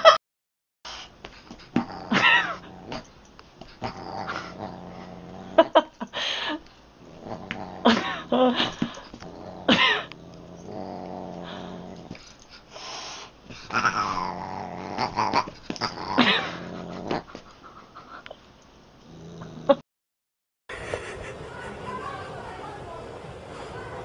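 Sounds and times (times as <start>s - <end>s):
cat growling low: 1.7s - 3.1s, 3.7s - 5.9s, 7.0s - 12.2s, 13.6s - 17.4s, 19.0s - 19.8s.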